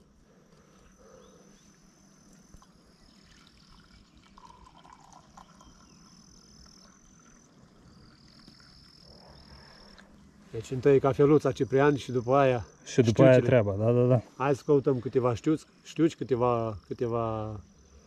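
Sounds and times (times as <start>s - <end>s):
insects trilling: 0.0s - 18.0s
coffee being poured: 2.3s - 10.2s.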